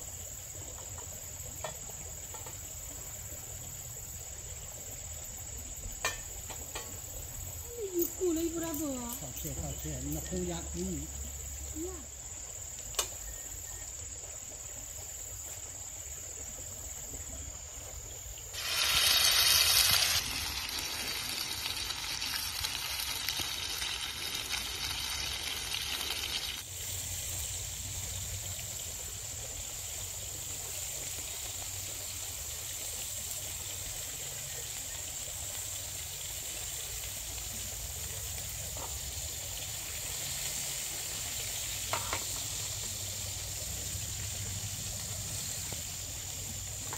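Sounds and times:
food sizzling in frying pan: 0.0s - 13.8s, 18.5s - 27.9s, 29.1s - 46.9s
insects trilling: 0.0s - 46.9s.

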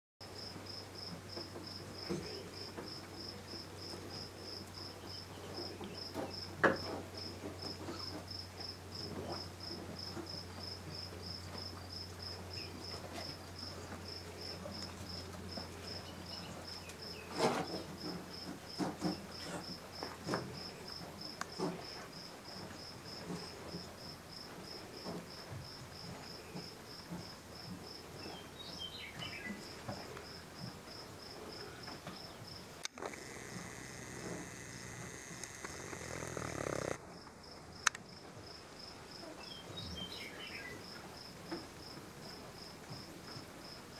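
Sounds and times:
cricket chirping: 0.2s - 43.8s
knocks and rustles: 12.7s - 37.4s.

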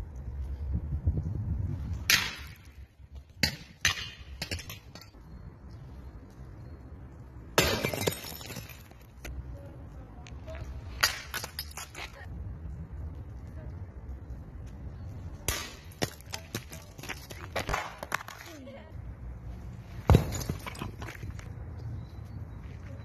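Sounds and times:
objects crashing on stone paving: 7.5s - 9.3s, 10.9s - 12.3s, 15.4s - 18.6s, 20.0s - 21.5s
glass shattering: 7.6s - 9.0s, 20.1s - 21.1s.

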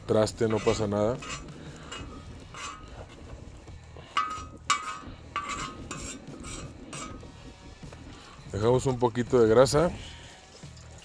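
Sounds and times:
metal spatula scraping on steel: 0.0s - 7.4s.

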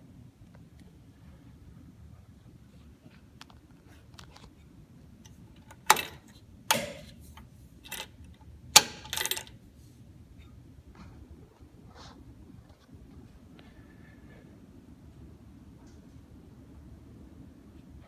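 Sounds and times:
switch cover rattle: 5.3s - 9.6s
toggle switches clicking: 5.6s - 8.1s.

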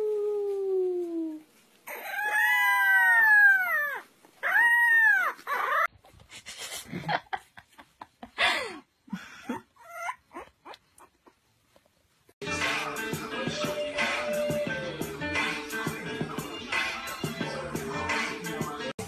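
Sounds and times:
puppy howling: 1.9s - 5.9s
puppy yipping: 1.9s - 5.9s, 9.8s - 11.4s.

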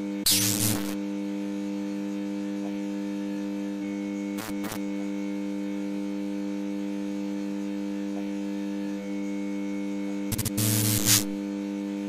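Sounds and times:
electrical hum: 0.0s - 12.0s
burst of static: 0.2s - 1.0s, 10.3s - 11.4s.

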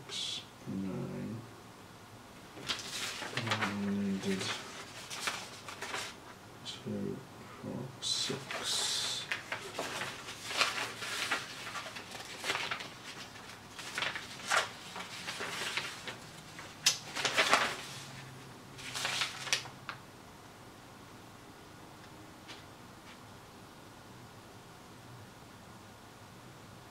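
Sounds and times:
paper sheets rustling: 2.5s - 6.4s, 8.1s - 20.0s.

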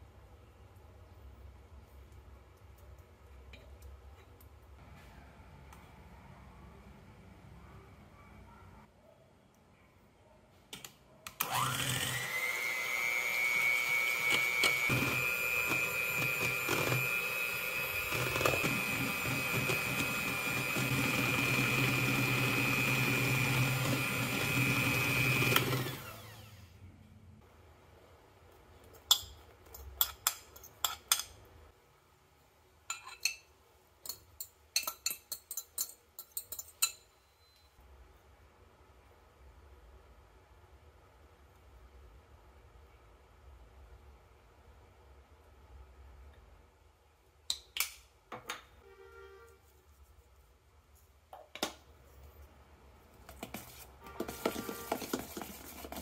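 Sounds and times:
electric hand mixer whining: 11.4s - 26.7s.

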